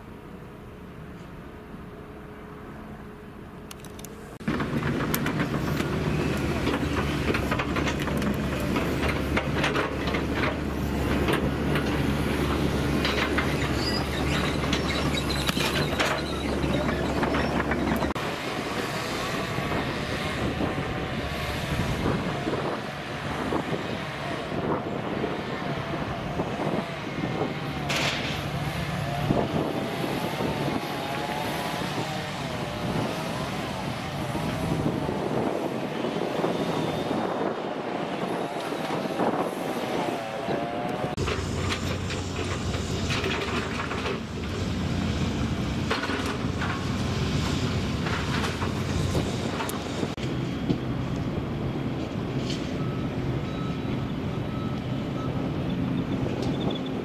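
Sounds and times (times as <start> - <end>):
knocks and clatter: 4.4 - 18.2.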